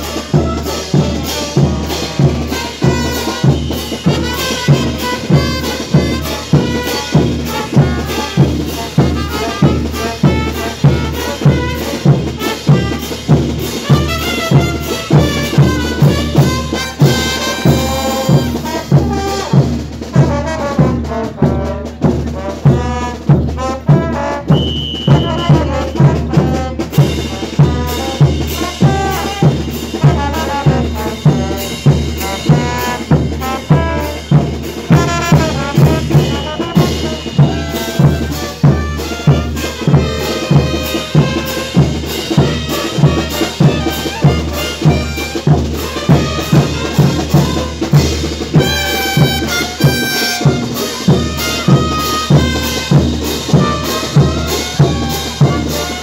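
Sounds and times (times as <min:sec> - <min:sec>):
bass drum beat: 0:00.0 - 0:56.0
brass band playing dance music: 0:00.0 - 0:56.0.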